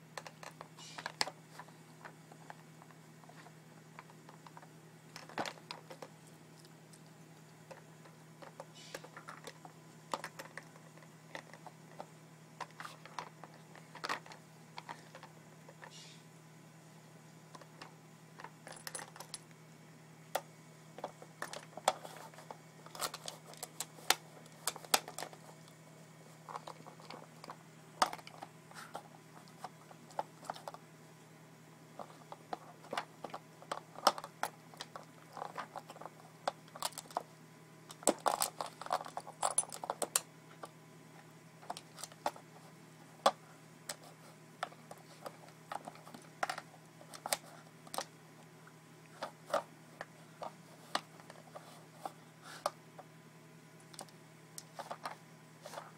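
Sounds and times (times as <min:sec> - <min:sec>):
plastic puzzle feeder clattering: 0:00.2 - 0:06.2, 0:07.6 - 0:16.0, 0:21.0 - 0:25.6, 0:26.4 - 0:30.8, 0:32.0 - 0:37.2, 0:37.9 - 0:40.7, 0:43.2 - 0:48.1, 0:53.9 - 0:55.9
treats rattling: 0:00.2 - 0:16.0, 0:26.3 - 0:30.8.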